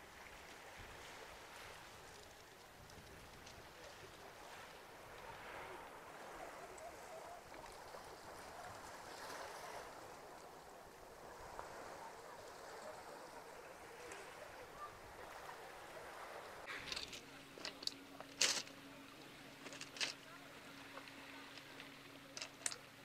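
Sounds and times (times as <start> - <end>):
waves washing over pebbles: 0.0 - 23.0
faint voices: 1.0 - 23.0.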